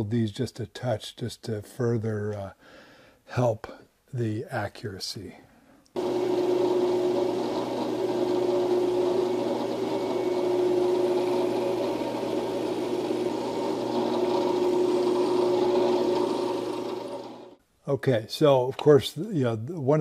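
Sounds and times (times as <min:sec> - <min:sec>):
drill bit boring into wood: 0:06.0 - 0:17.6
drill press humming: 0:06.0 - 0:17.6.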